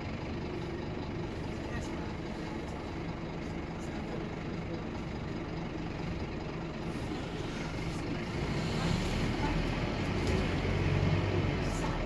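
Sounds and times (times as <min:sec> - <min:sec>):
bus diesel engine drone: 0:00.0 - 0:12.0
road noise: 0:00.0 - 0:12.0.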